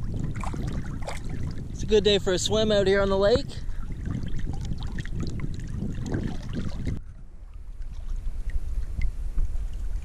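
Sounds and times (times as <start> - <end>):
water lapping: 0.0 - 10.0
water sloshing and splashing: 0.0 - 10.0
wind rumble on microphone: 0.0 - 10.0.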